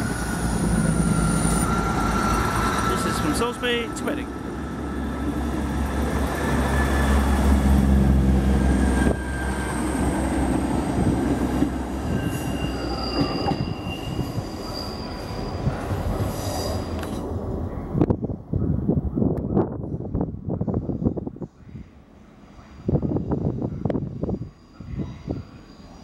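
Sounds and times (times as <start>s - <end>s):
train wheels squealing: 0.0s - 3.5s, 8.5s - 17.2s, 22.5s - 26.0s
diesel train engine droning: 0.0s - 26.0s.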